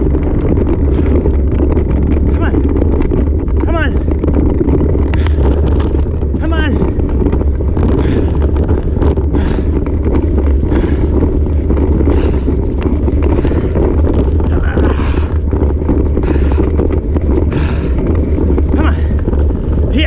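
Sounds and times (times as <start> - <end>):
bicycle tyres rolling on dirt trail: 0.0 - 20.0
wind buffeting microphone: 0.0 - 20.0.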